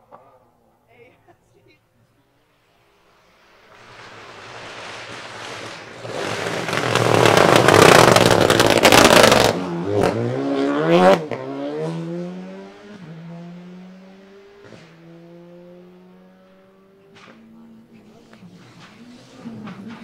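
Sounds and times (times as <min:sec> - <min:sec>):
gravel thrown by tyres: 0:03.7 - 0:09.6
rally car engine at high revs: 0:06.0 - 0:18.0.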